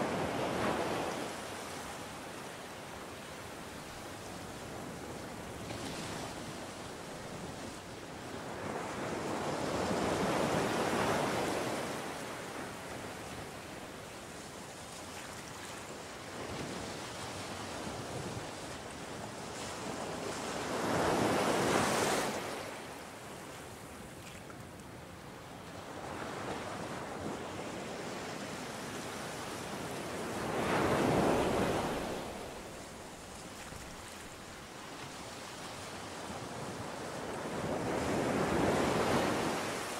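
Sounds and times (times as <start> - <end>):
waves breaking on a beach: 0.0 - 39.9
steady hiss of surf: 20.1 - 24.2, 24.8 - 39.9.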